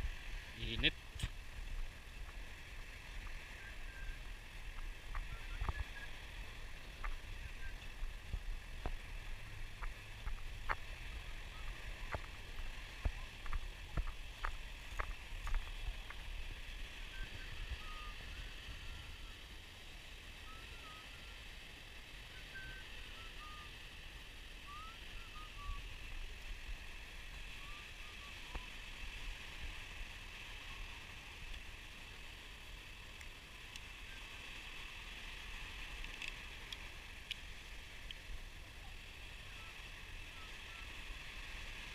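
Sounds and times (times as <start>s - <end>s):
footsteps crunching on sand: 8.0s - 16.2s.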